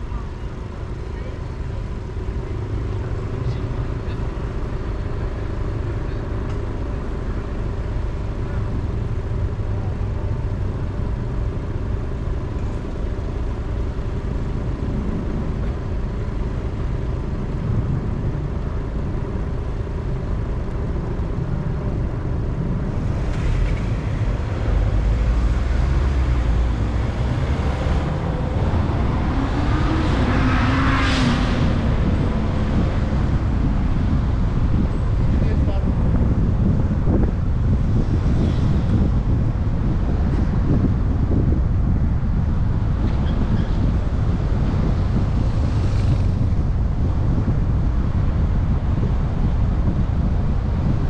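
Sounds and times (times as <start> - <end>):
car engine and tyre noise: 0.0 - 51.0
road traffic: 0.0 - 51.0
vehicle passing close by: 22.9 - 34.8, 43.0 - 48.1.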